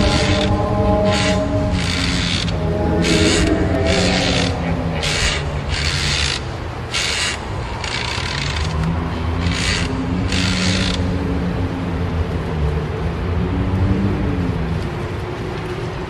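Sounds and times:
low droning hum: 0.0 - 15.2.

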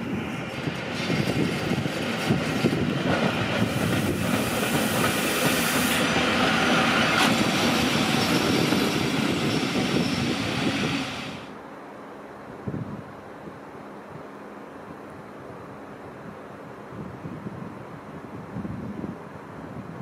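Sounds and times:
locomotive hiss: 0.0 - 11.6
locomotive wheels clattering over rails: 0.4 - 11.4.

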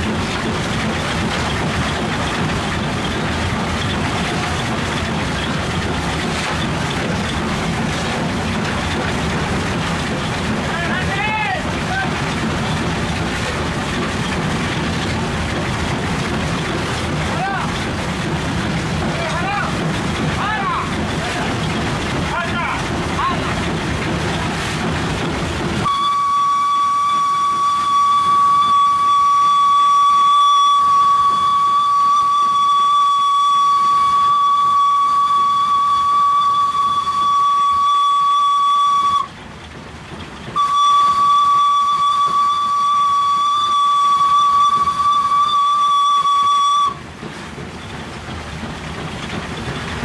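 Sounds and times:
steam locomotive whistle: 25.8 - 39.4, 40.6 - 47.0.

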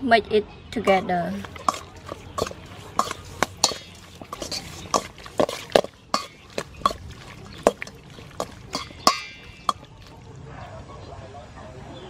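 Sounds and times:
spoon clinking against metal bowl: 0.9 - 10.2
wet squid being turned: 1.3 - 10.3.

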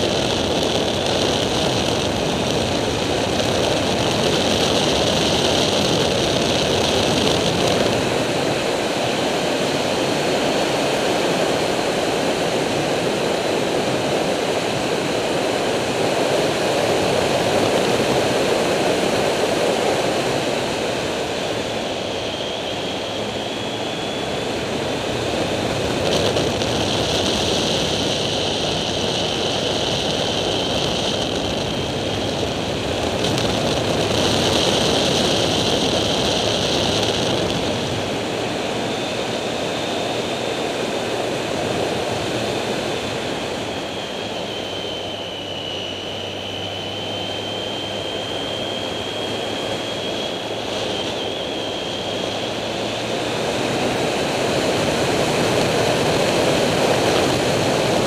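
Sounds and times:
motorcycle engine running: 0.0 - 8.5, 24.5 - 38.9
wind noise: 0.0 - 58.0.

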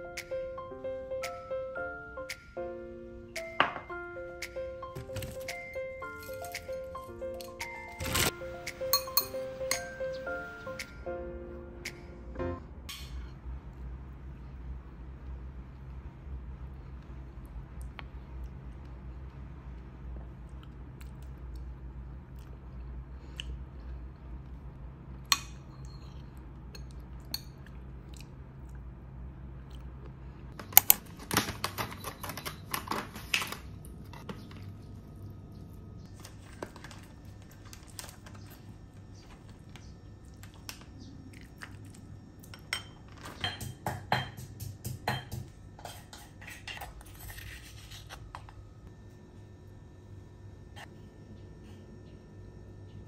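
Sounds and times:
low steady hum: 0.0 - 53.0
metal spoon clinking in bowl: 8.9 - 9.9.

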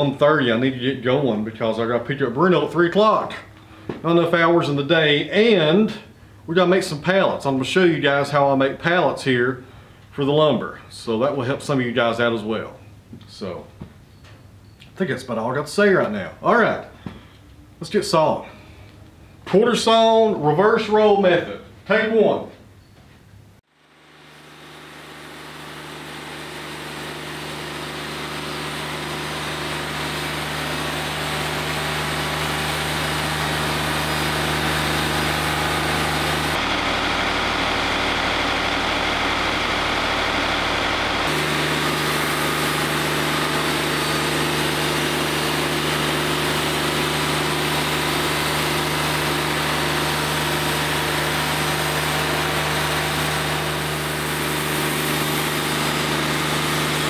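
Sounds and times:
sawmill diesel engine running: 23.8 - 57.0.

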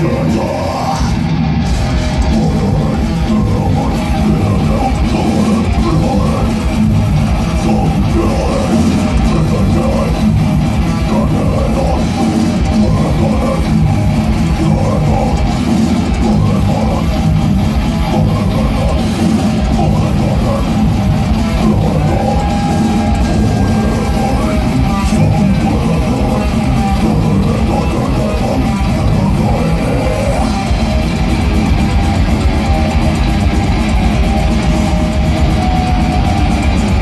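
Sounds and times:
bass guitar: 0.0 - 37.0
distorted electric guitars: 0.0 - 37.0
drum kit: 0.0 - 37.0.

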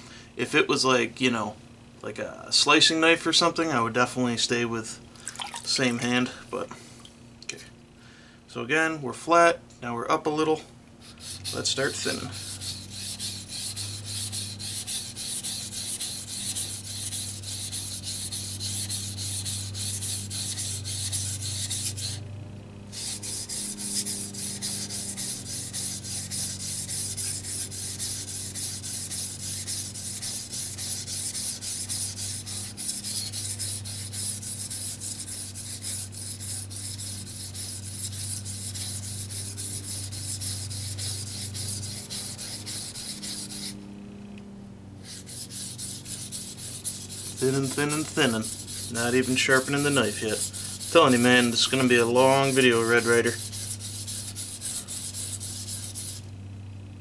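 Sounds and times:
steady low hum: 0.0 - 57.0
knife grinding on whetstone: 11.1 - 22.2, 22.9 - 43.8, 45.0 - 56.2.

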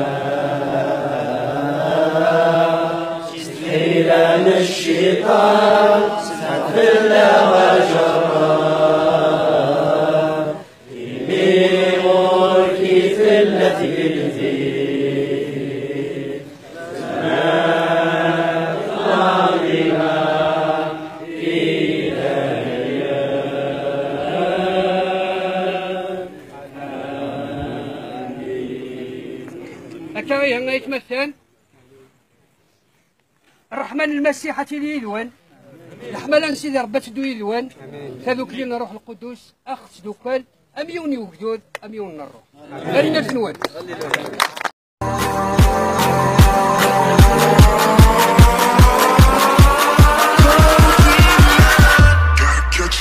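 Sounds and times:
men singing a hymn in unison: 0.0 - 30.0, 46.0 - 52.2.

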